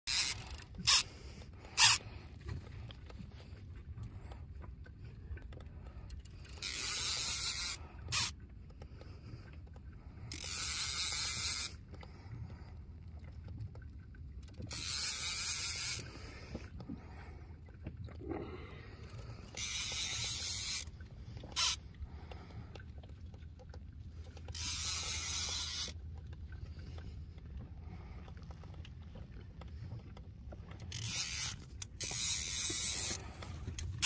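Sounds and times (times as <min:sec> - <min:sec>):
fishing reel whirring: 0:00.1 - 0:02.2, 0:06.2 - 0:08.4, 0:10.2 - 0:12.0, 0:14.5 - 0:16.7, 0:19.0 - 0:21.8, 0:24.3 - 0:26.2, 0:30.8 - 0:34.0
low steady rumble: 0:00.1 - 0:34.0.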